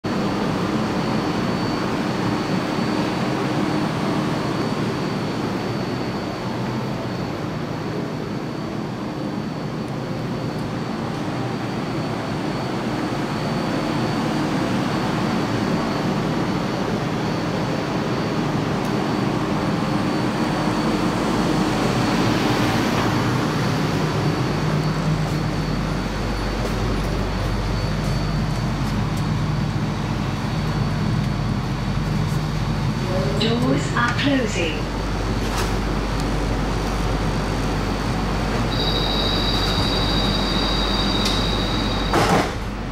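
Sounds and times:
faint high whine: 0.1s - 42.9s.

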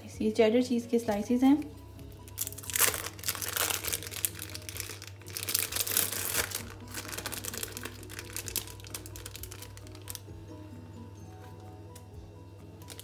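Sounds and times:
plastic film crinkling: 2.2s - 10.4s, 12.8s - 13.0s.

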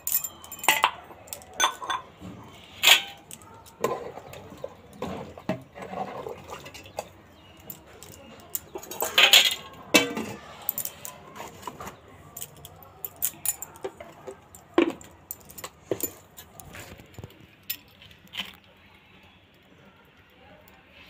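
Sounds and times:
steel cookware clattering: 0.0s - 16.8s.

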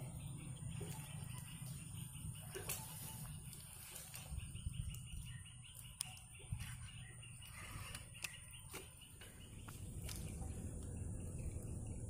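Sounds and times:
small bird chirping: 0.0s - 12.0s
steady low rumble: 3.2s - 12.0s.

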